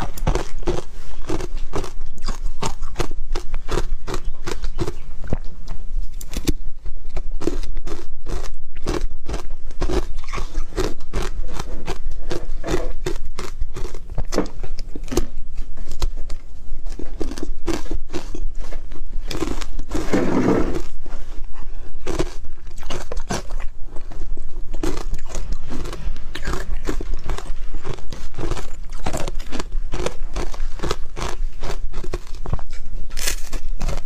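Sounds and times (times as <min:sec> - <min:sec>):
ice cubes crunching: 0:00.0 - 0:05.0, 0:16.9 - 0:21.0, 0:22.0 - 0:34.0.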